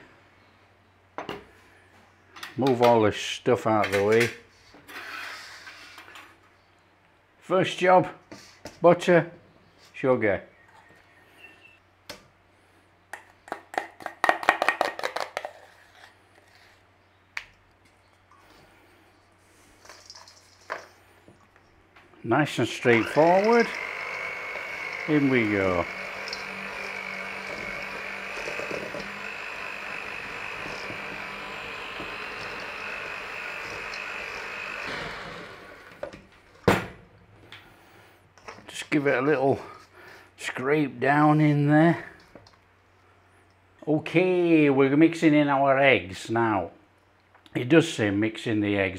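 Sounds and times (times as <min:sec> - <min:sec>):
electric hand mixer running: 0:22.7 - 0:36.0.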